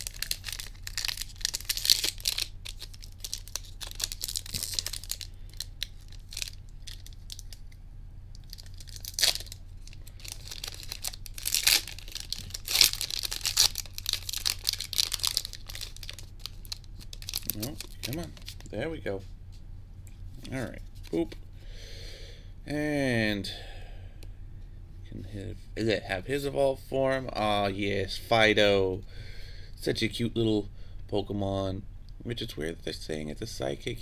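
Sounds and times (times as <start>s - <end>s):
foil wrappers crinkling and tearing: 0.0s - 7.6s, 8.4s - 18.7s.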